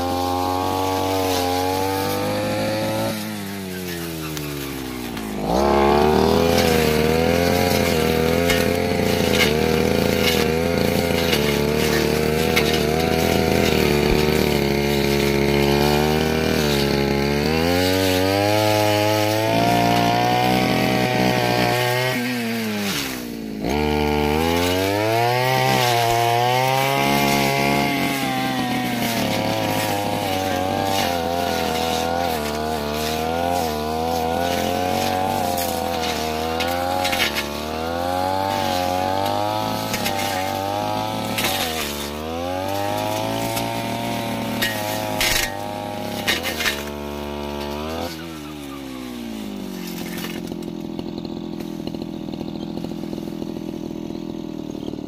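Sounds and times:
brush cutter engine revving: 0.0 - 55.0.

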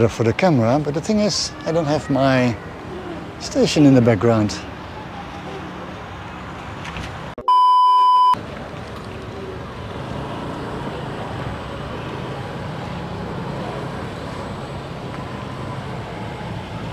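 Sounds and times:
motorbikes passing: 0.0 - 7.3, 8.4 - 16.9
street traffic: 0.0 - 16.9
loud electronic beep: 7.4 - 8.4.

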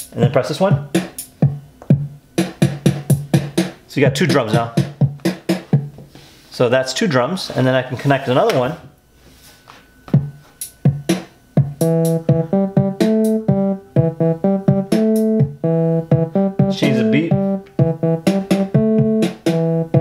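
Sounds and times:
drum beat pattern: 0.0 - 6.0, 10.2 - 20.0
repeating pitched riff: 10.9 - 20.0.

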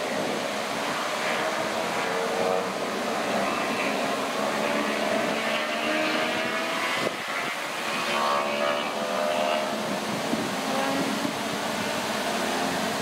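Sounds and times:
engine noise: 0.0 - 13.0.

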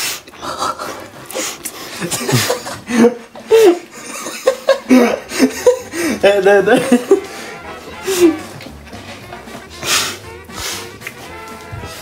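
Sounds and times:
young men laughing: 0.4 - 8.6
breathing: 5.9 - 6.2, 9.0 - 10.9.

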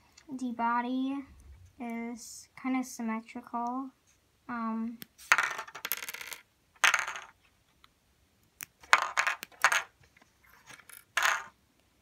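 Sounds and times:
plastic bricks clicking and clattering: 5.3 - 7.4, 8.8 - 10.0, 10.6 - 11.6.

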